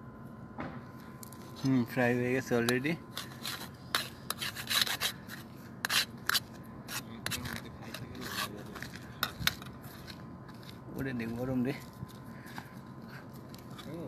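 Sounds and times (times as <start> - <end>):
knife scraping metal frying pan: 3.1 - 8.6.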